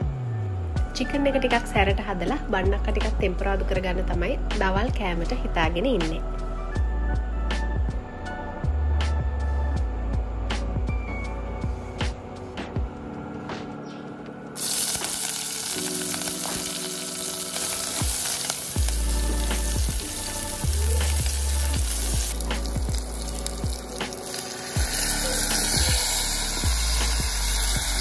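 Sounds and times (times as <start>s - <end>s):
hot oil sizzling in a pot: 14.6s - 28.0s.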